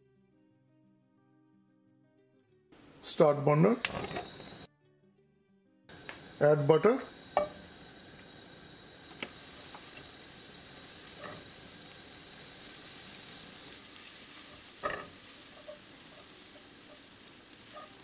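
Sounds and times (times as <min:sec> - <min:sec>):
butter sizzling in a pan: 0:05.9 - 0:18.0.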